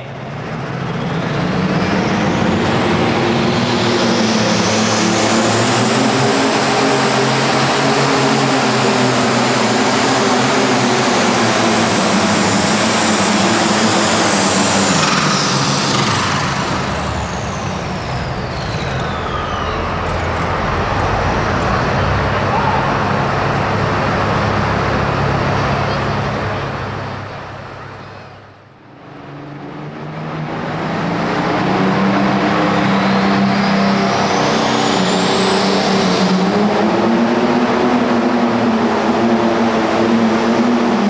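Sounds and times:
tractor engine running flat out: 0.2s - 28.6s.

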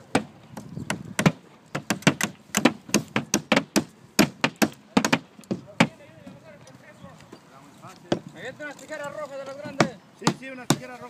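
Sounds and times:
hammers driving nails: 0.1s - 6.0s.

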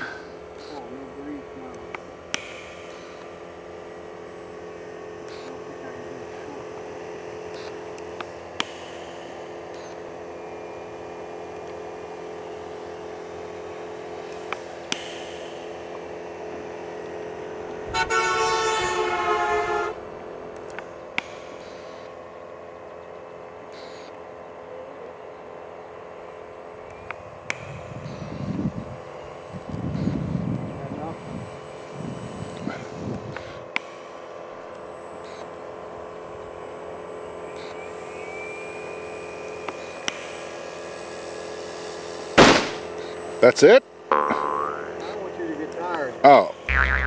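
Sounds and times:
electric motor and propeller whine: 0.0s - 46.2s
loud horn-like tone: 17.9s - 20.0s.

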